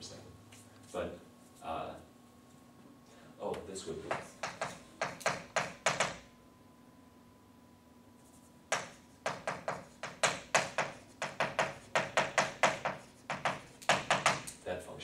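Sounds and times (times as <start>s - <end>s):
chalk tapping on chalkboard: 4.1s - 6.2s, 8.7s - 14.6s.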